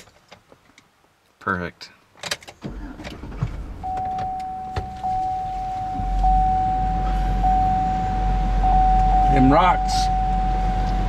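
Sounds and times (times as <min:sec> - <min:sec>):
truck engine running: 0:03.7 - 0:11.0
dashboard warning chime: 0:03.8 - 0:11.0.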